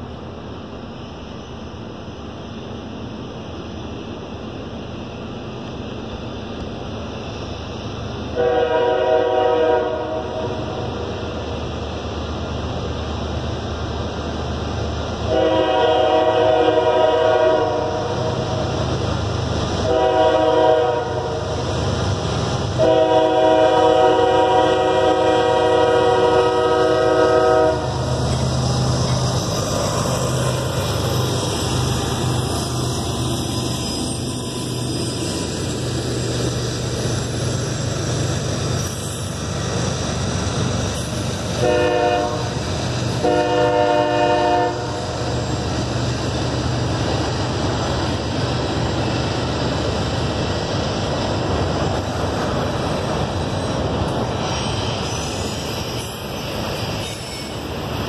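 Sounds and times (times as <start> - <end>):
locomotive rumbling past: 3.1 - 58.0
locomotive air horn: 8.4 - 10.9, 15.3 - 18.4, 19.8 - 21.5, 22.8 - 28.0, 41.6 - 42.6, 43.2 - 45.1.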